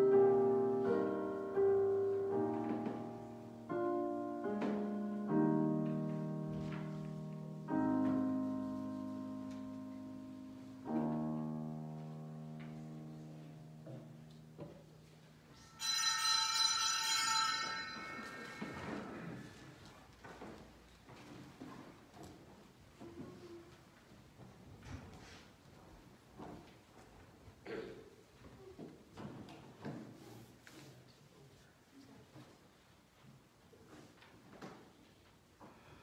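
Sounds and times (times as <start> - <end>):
piano playing slow chords: 0.0 - 16.1
bright ringing sound: 15.6 - 19.3.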